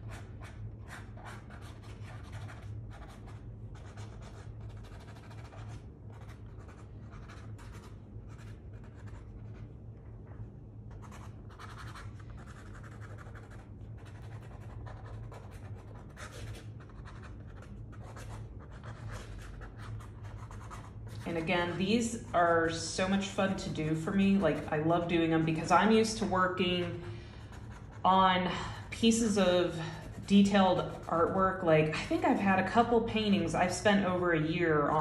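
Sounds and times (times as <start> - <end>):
pen scratching on paper: 0.0 - 9.6, 10.9 - 21.5
low hum: 0.0 - 35.0.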